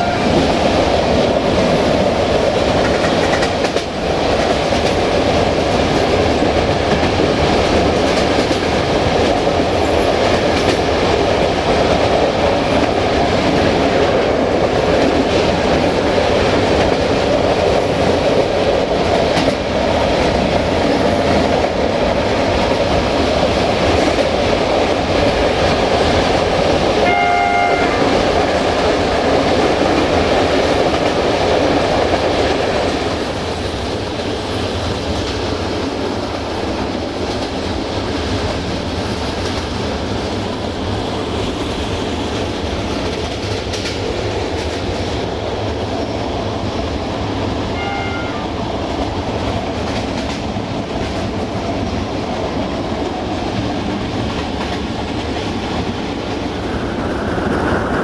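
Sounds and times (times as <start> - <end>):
locomotive horn blast: 0.0 - 0.4, 27.0 - 28.2, 47.8 - 48.6
train wheel clatter and rumble: 0.0 - 58.0.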